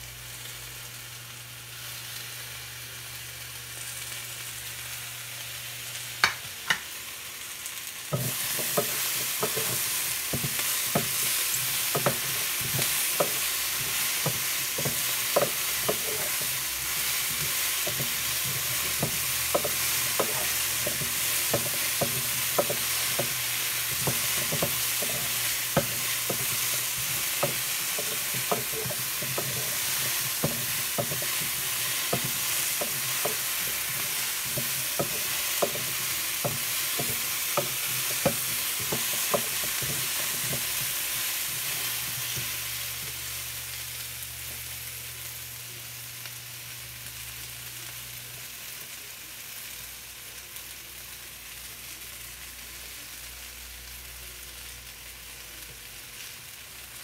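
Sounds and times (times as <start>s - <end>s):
vegetables sizzling in a frying pan: 0.0s - 57.0s
wooden spoon scraping a pan: 8.1s - 43.2s.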